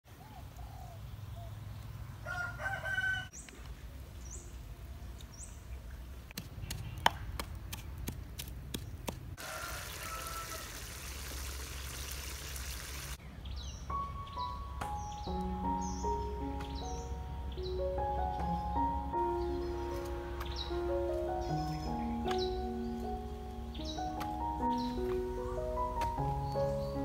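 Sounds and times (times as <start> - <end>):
rooster crowing: 2.2 - 3.4, 9.4 - 11.0
small birds chirping: 3.3 - 9.1, 11.3 - 27.0
food sizzling in a wok: 9.4 - 13.2.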